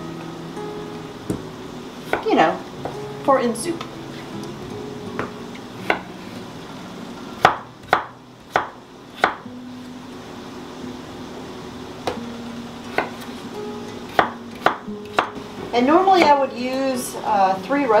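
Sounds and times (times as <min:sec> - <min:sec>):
knife chopping on wooden board: 0:07.4 - 0:09.4, 0:12.9 - 0:13.3, 0:14.1 - 0:15.4.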